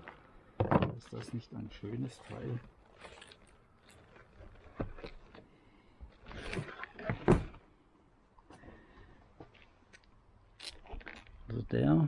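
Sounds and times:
thump on wooden table: 0.6 - 1.0.

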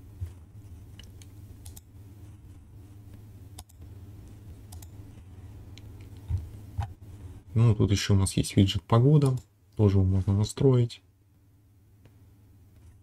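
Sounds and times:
low electrical hum: 0.0 - 13.0
computer mouse clicks: 0.9 - 1.9, 3.1 - 3.9, 4.7 - 5.0.

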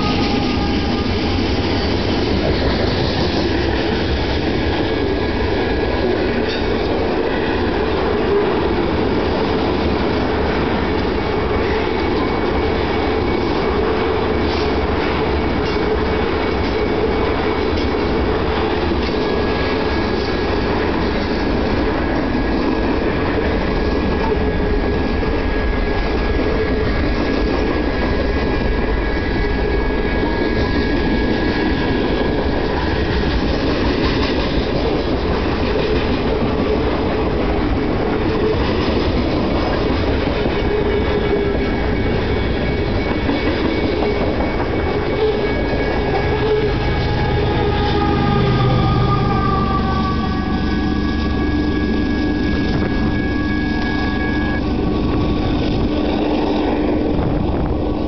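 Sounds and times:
freight train wheels rumbling: 0.0 - 58.0
high steady squealing tones: 39.2 - 58.0.

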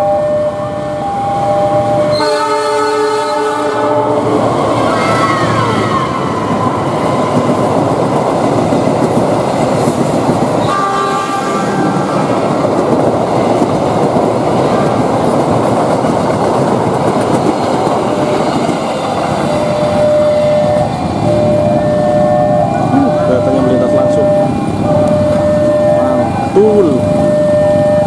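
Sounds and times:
train wheels clattering on rails: 6.2 - 21.8.

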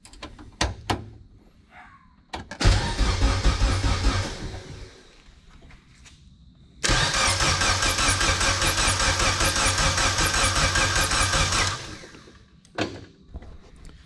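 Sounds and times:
engine cranking on starter: 2.6 - 5.1, 6.8 - 12.4.

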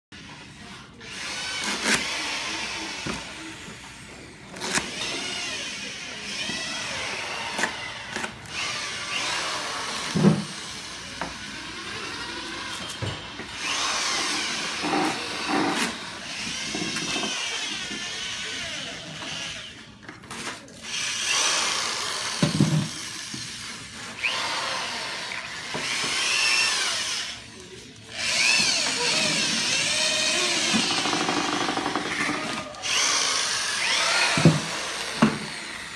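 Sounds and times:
electric drill whining: 0.2 - 35.9.

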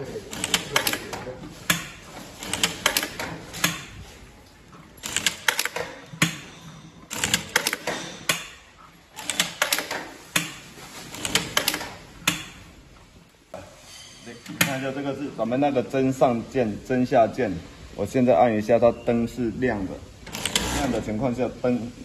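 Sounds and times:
sewing machine stitching: 0.0 - 1.2, 2.3 - 3.8, 5.0 - 6.0, 7.1 - 8.5, 9.1 - 10.2, 11.1 - 12.0, 20.3 - 21.2.

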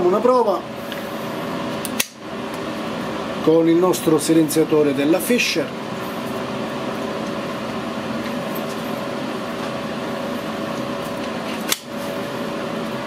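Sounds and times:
fume extractor fan humming: 0.0 - 13.0
sharp click: 1.8 - 2.2.

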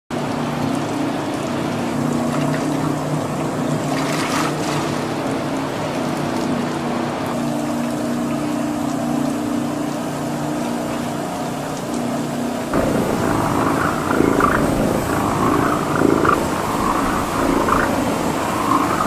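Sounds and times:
water pouring in: 0.2 - 6.5, 7.3 - 19.0
wet sloshing slurry: 12.4 - 19.0
mixing machine motor running: 12.7 - 19.0.

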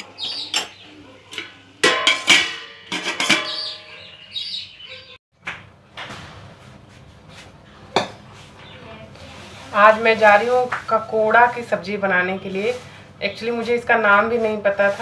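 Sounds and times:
metal spoon scraping pan: 1.8 - 4.0.

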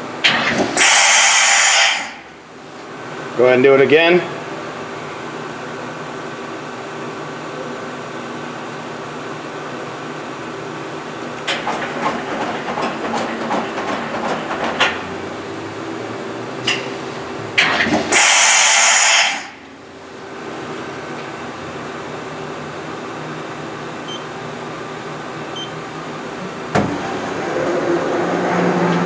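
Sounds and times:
machining center humming: 0.0 - 29.0
loud air hiss: 0.7 - 2.3, 18.1 - 19.6
tool changer clicking and clatter: 11.4 - 15.0.

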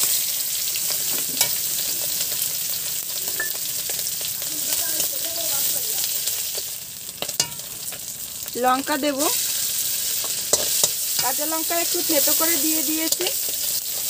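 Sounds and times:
food sizzling in hot oil: 0.0 - 14.0
metal spatula scraping pan: 9.3 - 14.0.

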